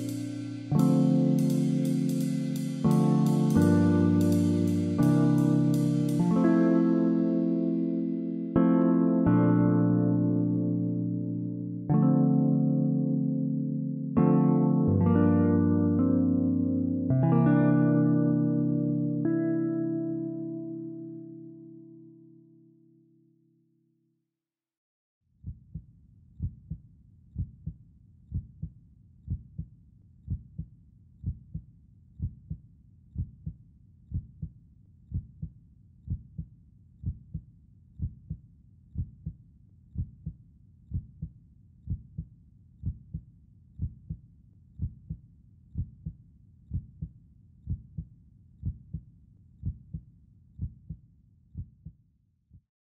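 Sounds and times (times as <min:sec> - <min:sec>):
heartbeat thumps: 0:41.9 - 0:43.2, 0:43.8 - 0:44.2, 0:44.8 - 0:45.2, 0:45.8 - 0:47.1, 0:47.7 - 0:49.0, 0:49.6 - 0:50.0, 0:50.6 - 0:51.0.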